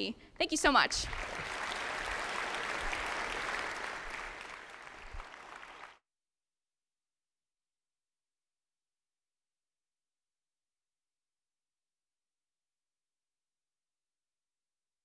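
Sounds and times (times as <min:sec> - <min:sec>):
audience applauding: 0:01.0 - 0:06.0.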